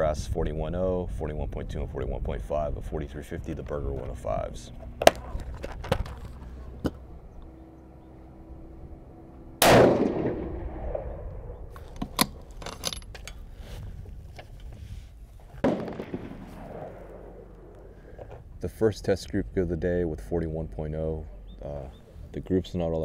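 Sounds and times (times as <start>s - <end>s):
rifle shot: 9.6s - 11.8s, 15.6s - 18.0s
weaker bang: 9.6s - 11.8s, 15.6s - 18.4s.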